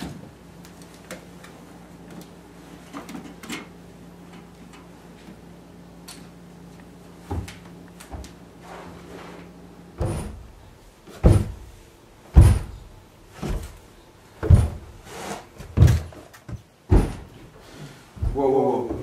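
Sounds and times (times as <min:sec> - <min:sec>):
dull thumps and knocks: 0:11.1 - 0:11.7, 0:12.3 - 0:13.8, 0:14.4 - 0:14.9, 0:15.6 - 0:17.4.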